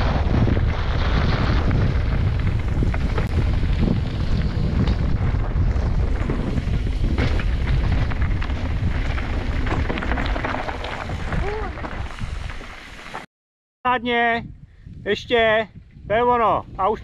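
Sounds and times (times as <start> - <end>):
wind buffeting microphone: 0.0 - 12.7, 14.0 - 17.0
bike tyres clattering on dirt: 0.0 - 13.2.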